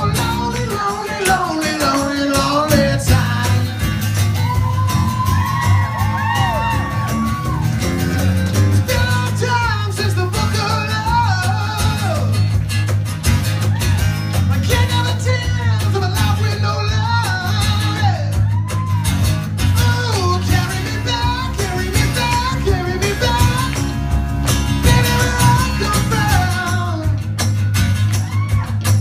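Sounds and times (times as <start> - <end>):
man singing: 0.0 - 4.1, 8.7 - 12.5, 14.5 - 18.5, 19.6 - 27.4
heavy electric bass line: 0.0 - 29.0
strummed acoustic guitars: 0.0 - 29.0.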